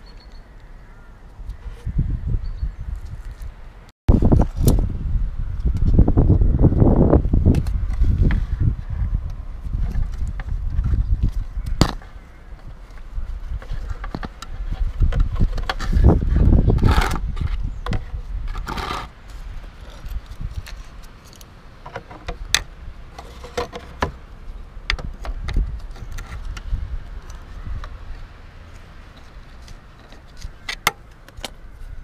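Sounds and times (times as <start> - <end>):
scraping and rustling: 9.6 - 32.0.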